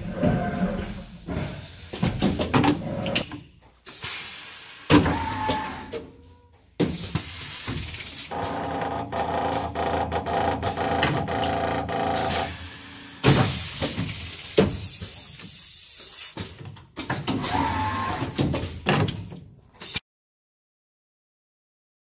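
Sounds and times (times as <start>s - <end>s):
actuators clicking and knocking: 0.0s - 4.0s, 4.9s - 20.0s
compressed air hissing: 3.9s - 4.9s, 6.9s - 8.3s, 12.4s - 16.4s
machine hum: 8.3s - 13.2s.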